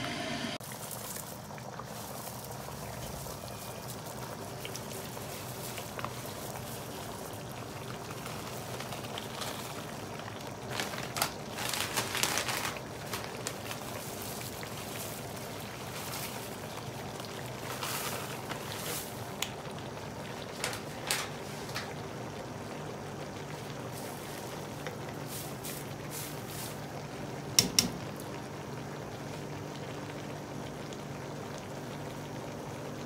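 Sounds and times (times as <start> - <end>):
coconut milk simmering: 0.1 - 33.0
plastic bag crinkling: 0.6 - 19.6, 20.2 - 22.0
dried leaves rustling: 0.6 - 22.0, 23.4 - 27.3.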